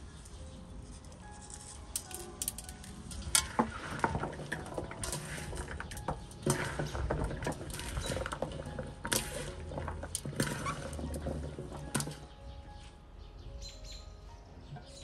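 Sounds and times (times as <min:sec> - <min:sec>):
hands mixing chopped vegetables in pot: 0:02.3 - 0:12.4.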